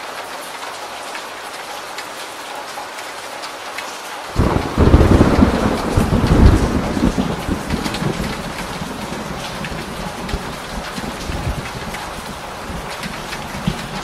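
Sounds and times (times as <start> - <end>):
heavy rain: 0.0 - 14.0
thunder rumble: 4.4 - 14.0.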